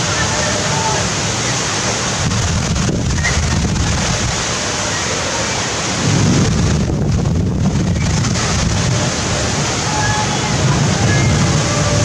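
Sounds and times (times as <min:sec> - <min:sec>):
gusting wind: 0:00.0 - 0:12.0
heavy rain pouring: 0:00.0 - 0:12.0
wind buffeting microphone: 0:01.2 - 0:04.6, 0:05.8 - 0:12.0.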